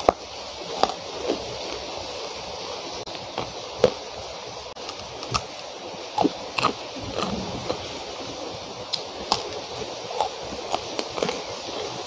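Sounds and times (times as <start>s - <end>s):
person chewing: 0.0s - 2.4s, 4.8s - 8.1s, 8.9s - 12.0s
heavy rain hiss: 0.0s - 12.0s.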